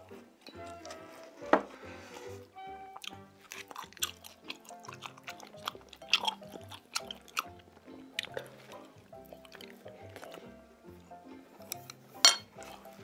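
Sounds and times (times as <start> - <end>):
close-miked chewing and biting: 3.0 - 13.0.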